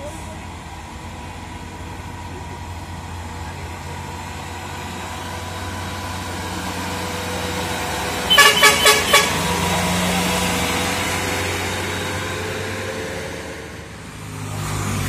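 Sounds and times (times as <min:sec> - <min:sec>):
diesel truck engine climbing: 0:00.0 - 0:15.0
horn toots: 0:08.3 - 0:09.7.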